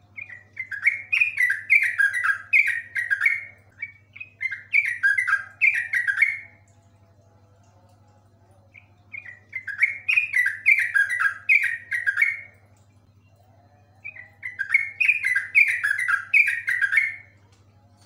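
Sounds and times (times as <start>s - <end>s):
bird singing rolling song: 0.0s - 6.7s, 8.6s - 17.4s.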